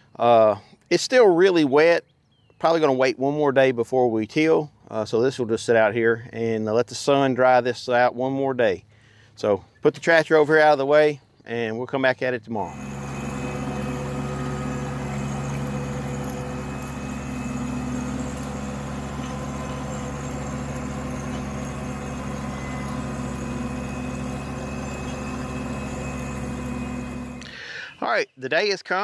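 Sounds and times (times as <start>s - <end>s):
tractor diesel engine under load: 12.4s - 28.2s.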